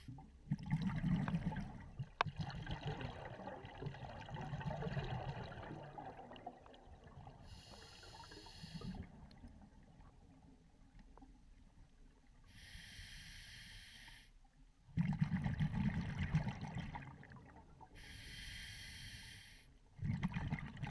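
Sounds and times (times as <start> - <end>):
regulator hissing inhalations: 7.5 - 9.0, 12.6 - 14.3, 18.0 - 19.7.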